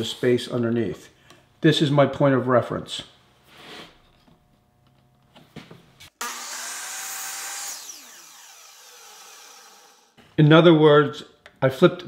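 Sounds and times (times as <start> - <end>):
miter saw cutting wood: 6.1 - 10.2.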